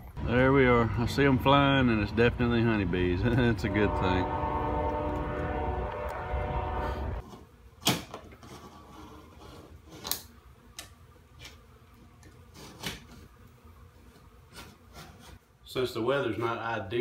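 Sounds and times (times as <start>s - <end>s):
train horn blast: 3.2s - 7.2s.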